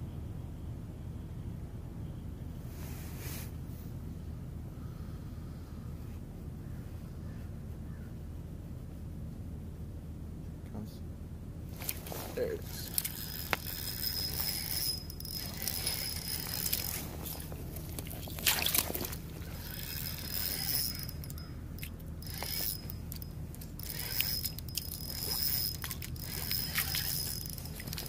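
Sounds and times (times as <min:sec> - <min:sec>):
fishing reel whirring and clicking: 0:11.8 - 0:28.0.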